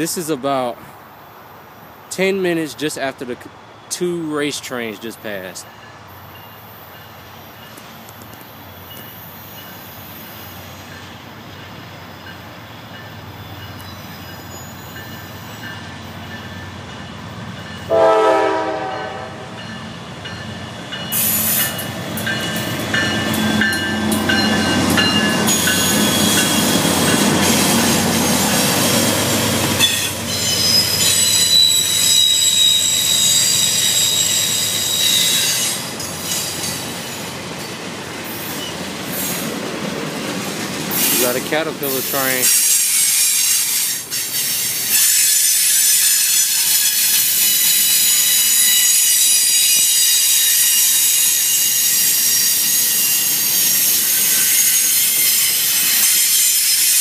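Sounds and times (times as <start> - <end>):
diesel train passing: 0.0 - 57.0
train wheels squealing: 5.6 - 16.8, 19.6 - 37.3, 40.9 - 57.0
train horn blast: 17.9 - 19.5.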